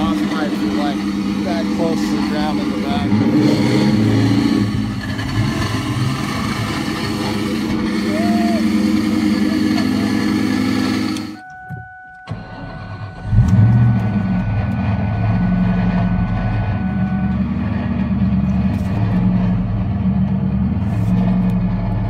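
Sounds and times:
car engine idling: 0.0s - 22.0s
electronic warning tone: 11.1s - 17.6s.

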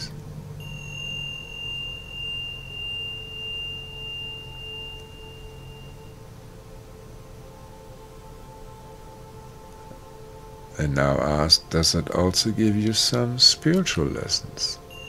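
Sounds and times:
high pure chime tone: 0.0s - 7.0s, 12.9s - 15.0s
soft low drone: 0.0s - 15.0s.

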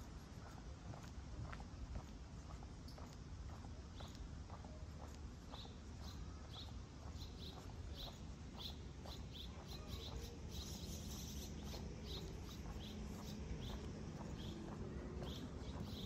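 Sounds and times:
footsteps walking: 0.0s - 16.0s
outdoor background hum: 0.0s - 16.0s.

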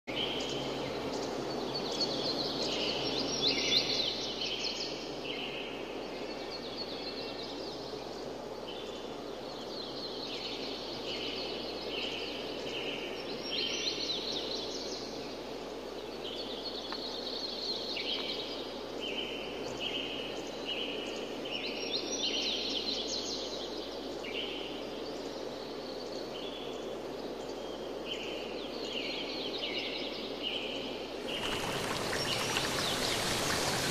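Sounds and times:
bird chirping: 30.6s - 33.9s.

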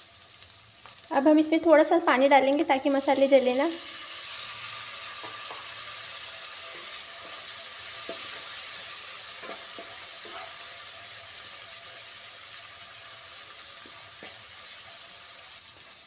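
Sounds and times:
spices sizzling in hot oil: 0.0s - 16.0s
wooden spatula scraping pan: 9.4s - 10.7s.

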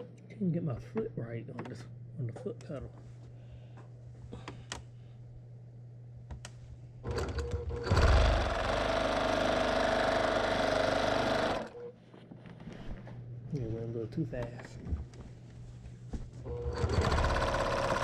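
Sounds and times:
sewing machine stitching: 7.0s - 11.8s, 16.5s - 18.0s.

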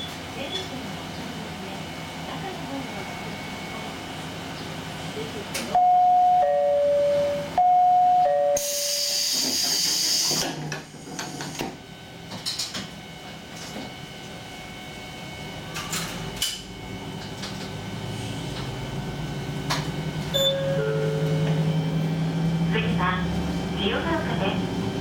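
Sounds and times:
diesel engine idling: 18.7s - 25.0s
two-note falling chime: 20.4s - 21.9s.

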